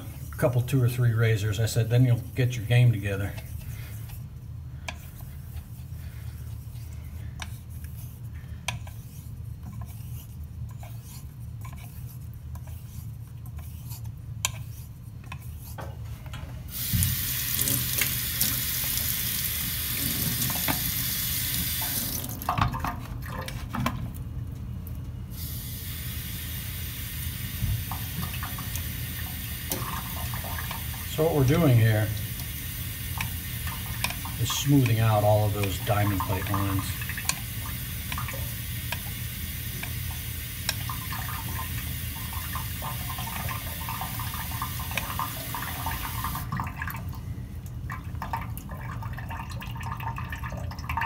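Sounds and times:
razor scraping on water stone: 0:06.5 - 0:15.8
water pouring into steel sink: 0:16.7 - 0:23.6, 0:26.0 - 0:47.1, 0:47.9 - 0:51.0
tap running over stone: 0:16.8 - 0:19.0, 0:27.5 - 0:28.3.

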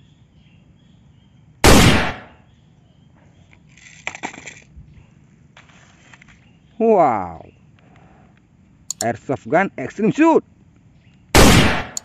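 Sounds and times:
loud gunshot: 0:01.6 - 0:02.3, 0:11.4 - 0:12.0.

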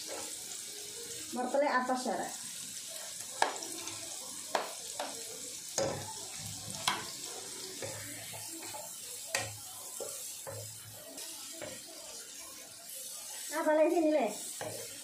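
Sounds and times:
vegetables sizzling in a frying pan: 0:00.0 - 0:15.0.

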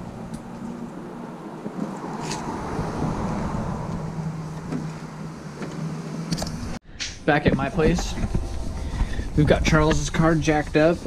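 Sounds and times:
car engine humming inside cabin: 0:00.0 - 0:06.8.

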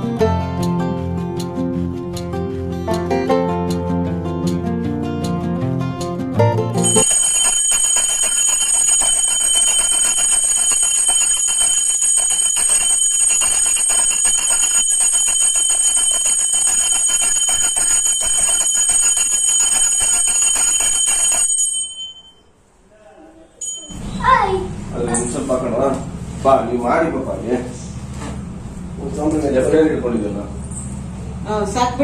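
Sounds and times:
hand bell ringing rapidly: 0:06.8 - 0:22.4.

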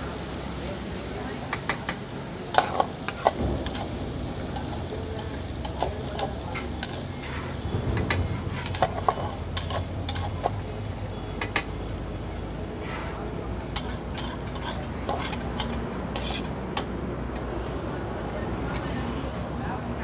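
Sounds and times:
spices sizzling in hot oil: 0:00.0 - 0:20.0
metal ladle stirring and scraping: 0:02.5 - 0:10.8, 0:13.7 - 0:17.5
ladle clinking against pan: 0:05.6 - 0:10.6, 0:11.3 - 0:11.8.

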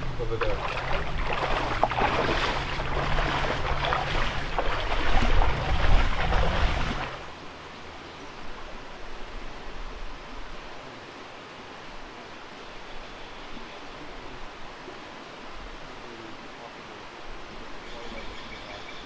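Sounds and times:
wading steps splashing in water: 0:00.0 - 0:07.3
faint steady hiss: 0:06.9 - 0:19.0.

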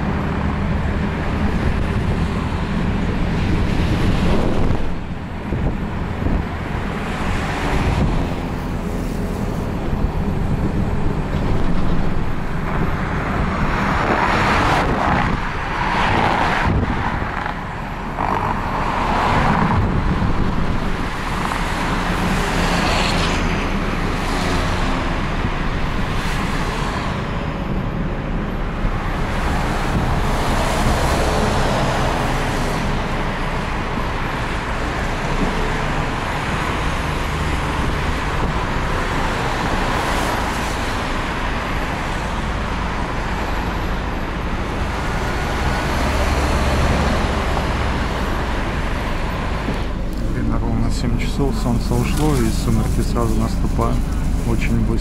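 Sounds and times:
bus engine drone: 0:00.0 - 0:55.0
road noise: 0:00.0 - 0:55.0.

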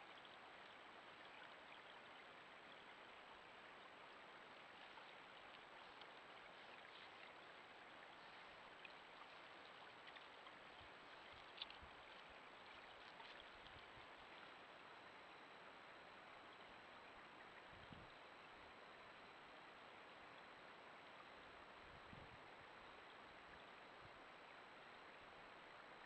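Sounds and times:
microphone hiss: 0:00.0 - 0:26.0.

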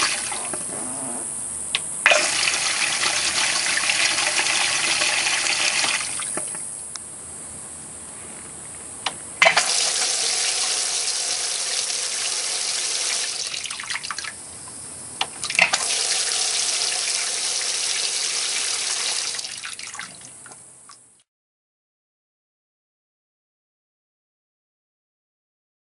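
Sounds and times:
water spraying into a tank: 0:00.0 - 0:00.6, 0:02.0 - 0:06.6, 0:09.4 - 0:14.4, 0:15.4 - 0:21.0.

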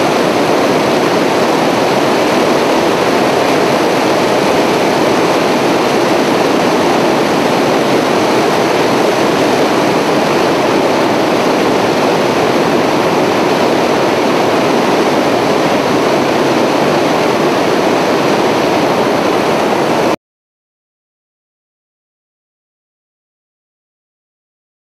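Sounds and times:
aircraft engine and airflow roar: 0:00.0 - 0:20.2.

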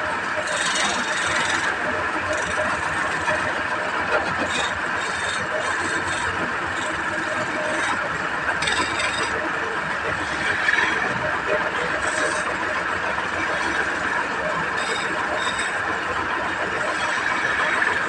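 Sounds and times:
wood lathe running: 0:00.2 - 0:18.0
turning tool scraping wood: 0:00.4 - 0:03.4, 0:04.2 - 0:09.4, 0:14.8 - 0:15.9.

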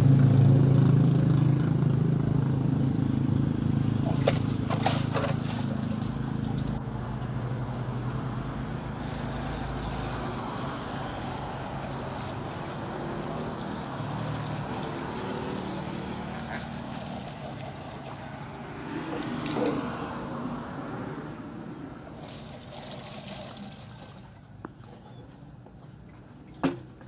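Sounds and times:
water gushing into a plastic can: 0:08.9 - 0:19.9, 0:22.0 - 0:24.6.

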